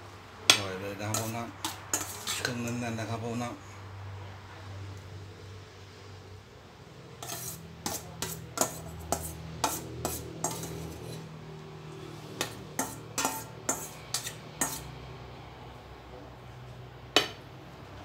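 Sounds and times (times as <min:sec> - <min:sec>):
metal spoon scraping steel bowl: 0:01.0 - 0:02.9, 0:07.2 - 0:11.3, 0:12.4 - 0:14.9.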